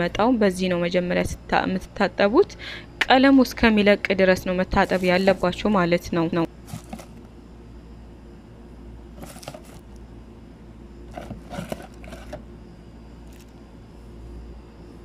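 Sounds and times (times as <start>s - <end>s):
low steady hum: 0.0s - 15.0s
plastic packaging crinkling: 6.6s - 7.3s, 9.2s - 9.9s, 11.1s - 12.4s.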